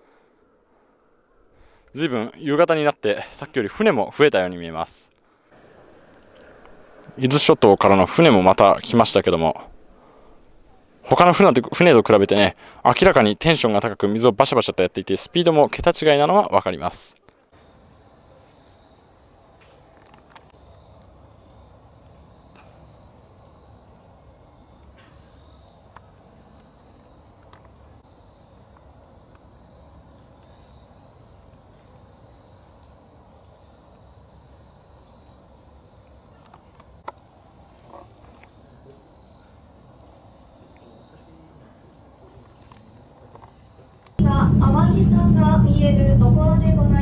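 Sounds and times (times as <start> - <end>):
faint clicks: 5.1 - 7.2
insects chirring: 5.5 - 44.8.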